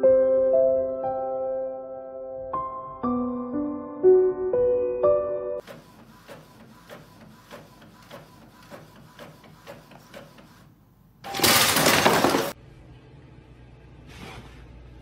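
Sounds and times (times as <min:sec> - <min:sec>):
inkjet printer ticking: 0:05.6 - 0:10.6.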